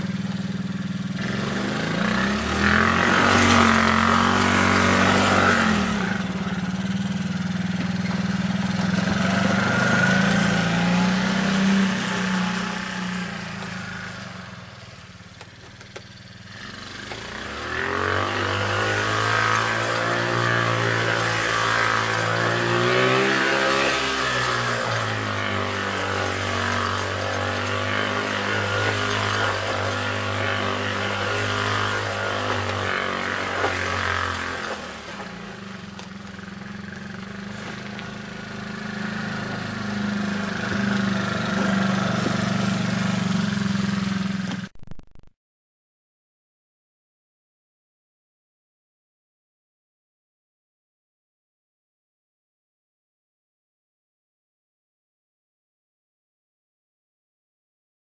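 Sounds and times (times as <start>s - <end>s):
small atv engine running: 0.0s - 44.8s.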